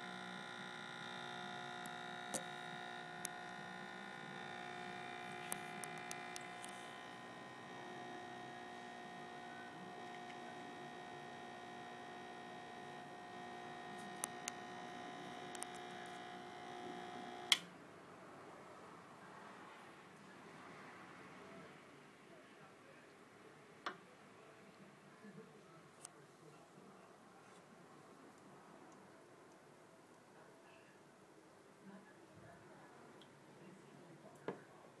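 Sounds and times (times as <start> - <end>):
espresso machine pump humming: 0.0 - 17.6
switch click: 17.4 - 17.7.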